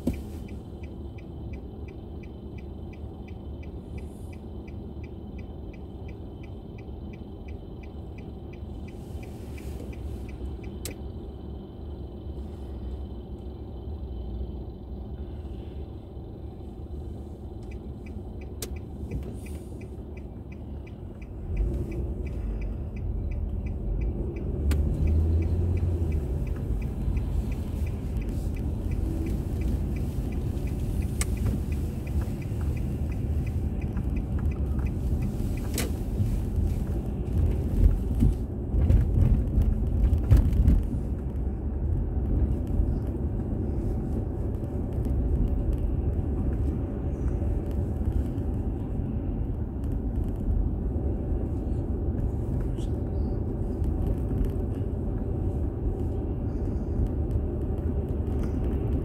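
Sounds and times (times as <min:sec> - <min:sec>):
faint regular ticking: 0:00.0 - 0:11.7, 0:16.6 - 0:38.3
road and tyre rumble: 0:00.0 - 0:59.0.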